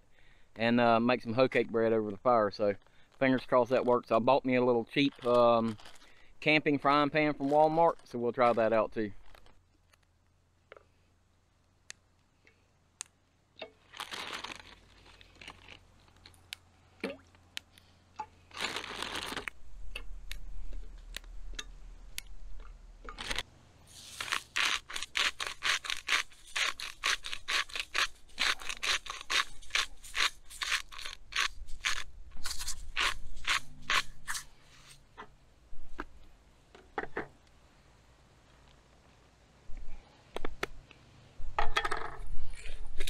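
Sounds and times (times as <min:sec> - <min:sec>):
plastic bag crinkling: 0:04.8 - 0:09.6, 0:13.8 - 0:16.5, 0:18.4 - 0:19.6, 0:23.0 - 0:35.0.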